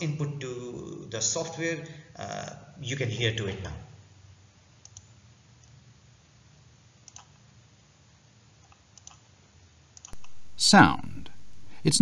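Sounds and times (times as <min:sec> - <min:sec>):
faint computer mouse clicks: 0:04.8 - 0:05.8, 0:07.0 - 0:07.4, 0:08.6 - 0:09.3.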